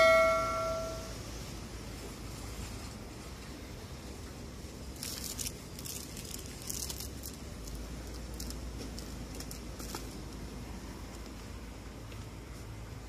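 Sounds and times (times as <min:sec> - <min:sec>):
steady low hum: 0:00.0 - 0:13.0
plastic wrappers crinkling: 0:04.9 - 0:10.4.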